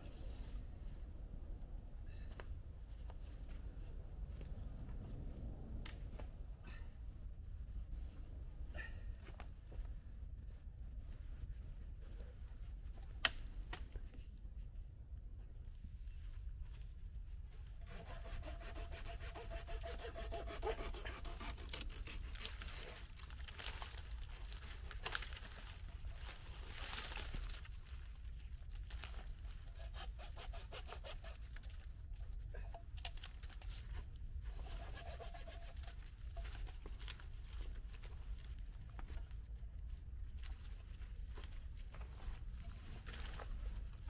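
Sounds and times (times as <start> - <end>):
steady low rumble: 0.0 - 17.9.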